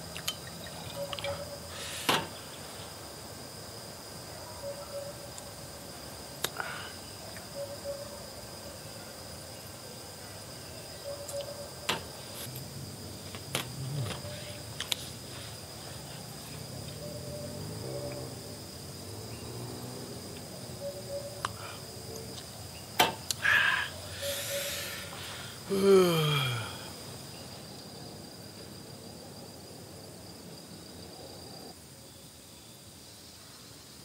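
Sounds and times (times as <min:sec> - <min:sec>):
forest insects droning: 0:00.0 - 0:34.0
man sighing: 0:06.6 - 0:07.0, 0:23.4 - 0:27.0.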